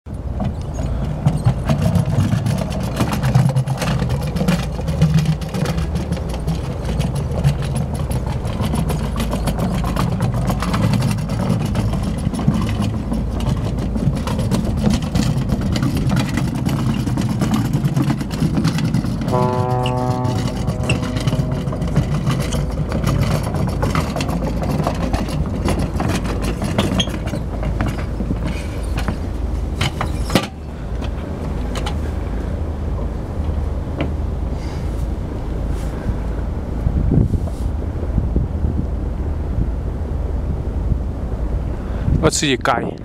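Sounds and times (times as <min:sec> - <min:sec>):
scooter wheels rolling on wood: 0:00.2 - 0:32.2
horn: 0:19.2 - 0:23.6.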